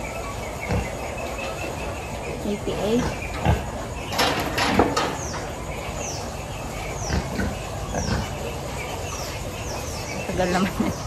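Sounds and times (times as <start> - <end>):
bird chirping: 0.0 - 11.0
pig grunting: 0.6 - 1.0, 2.8 - 3.9, 6.9 - 8.7
knocks in metal crate: 4.1 - 5.3.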